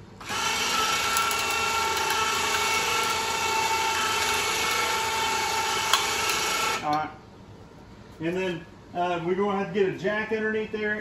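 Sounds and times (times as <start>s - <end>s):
electric winch motor running: 0.2s - 6.9s.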